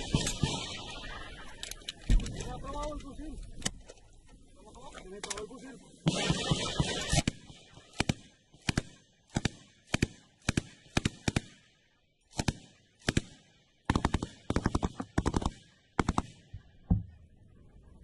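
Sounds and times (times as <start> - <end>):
machine gun firing bursts: 0.0 - 1.2, 6.0 - 11.6, 12.3 - 16.4.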